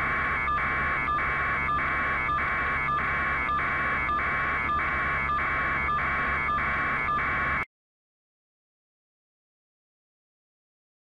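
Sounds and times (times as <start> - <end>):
helicopter rotor pulsing: 0.0 - 7.6.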